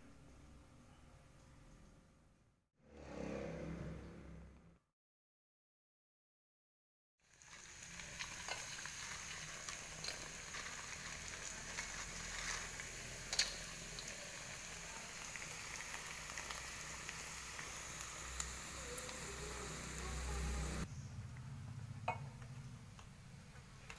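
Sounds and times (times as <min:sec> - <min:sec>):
oil crackling and popping: 0:07.2 - 0:20.8
crackers frying in hot oil: 0:07.2 - 0:20.9.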